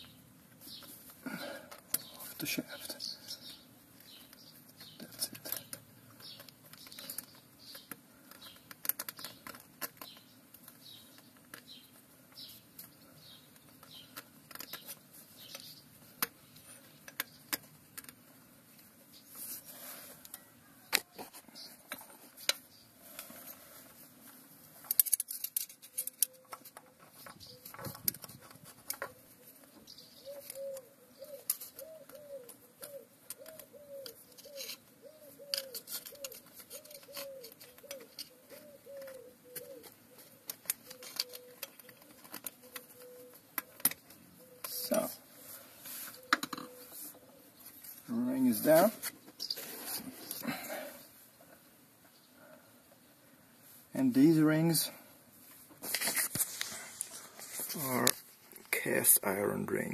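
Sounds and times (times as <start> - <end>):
metallic clicks and scrapes: 24.8 - 29.2, 32.8 - 45.1
pigeon cooing: 26.2 - 47.6.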